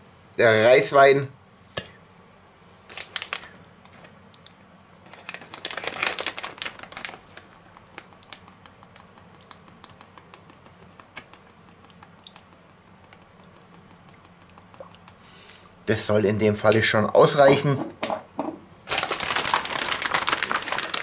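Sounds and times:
plastic bag crinkling: 2.8s - 3.6s, 5.0s - 8.4s, 18.8s - 21.0s.

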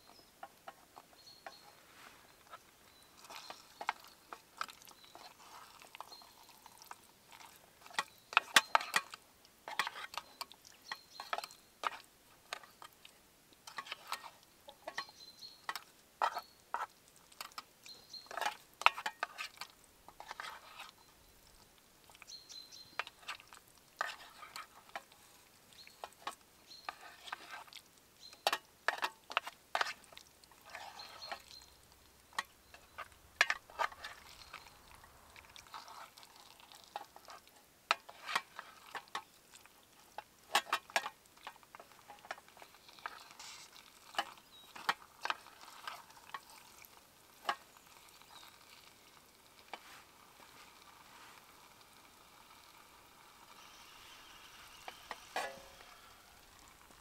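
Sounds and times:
food sizzling faintly: 0.0s - 57.0s
spoon scraping metal pot: 7.8s - 12.8s, 18.2s - 21.0s, 22.8s - 25.3s, 25.9s - 27.8s, 28.4s - 39.2s, 42.2s - 46.5s, 53.4s - 57.0s.

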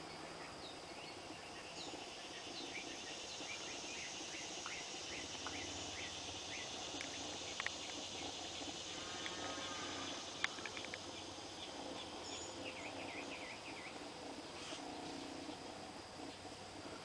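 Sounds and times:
insects droning: 0.0s - 17.0s
bird chirps: 0.4s - 14.6s
sharp clicks: 10.4s - 11.2s.

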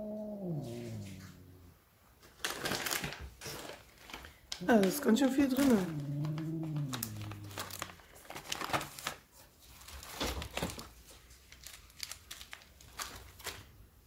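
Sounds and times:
plastic packaging crinkling: 2.2s - 13.7s
low voice-like sound: 5.5s - 7.8s.

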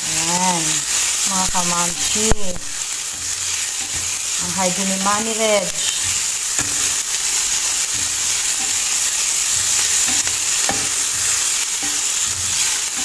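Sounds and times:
vegetables sizzling in frying pan: 0.0s - 13.0s
spatula scraping and tapping pan: 1.9s - 4.4s, 5.7s - 13.0s.

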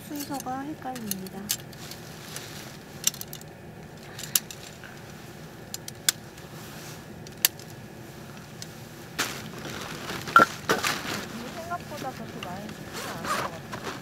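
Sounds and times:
metal frame clicking and clinking: 0.0s - 2.0s.

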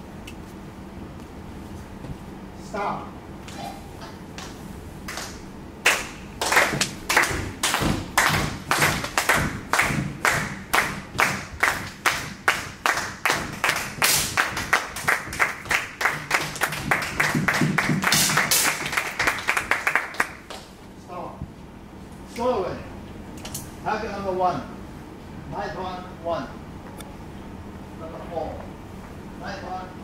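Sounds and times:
rhythmic clapping: 4.1s - 20.8s
burst of applause: 5.9s - 20.6s.

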